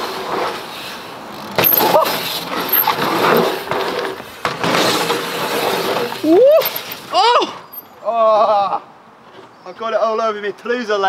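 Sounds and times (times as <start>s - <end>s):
bike tyres rolling over dirt: 0.0s - 7.2s.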